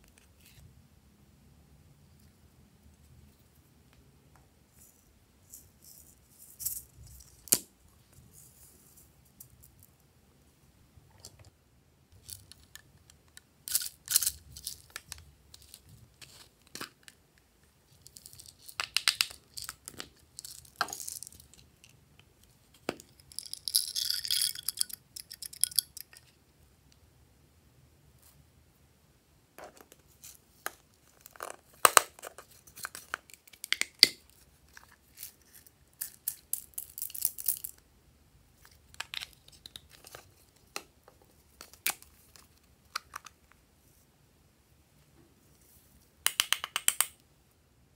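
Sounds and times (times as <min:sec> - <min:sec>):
tiny pieces rattling into a palm: 0:23.0 - 0:26.3.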